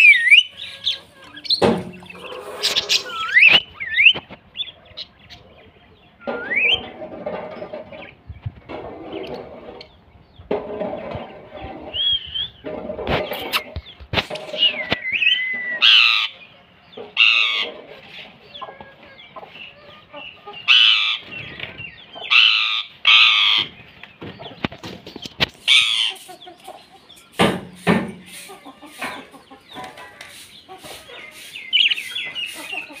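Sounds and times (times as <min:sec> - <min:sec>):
parakeets screeching: 0:00.0 - 0:04.2, 0:14.6 - 0:16.4, 0:17.2 - 0:17.7, 0:20.6 - 0:23.8, 0:25.6 - 0:27.1, 0:28.3 - 0:33.0
soft bird chatter: 0:00.0 - 0:33.0.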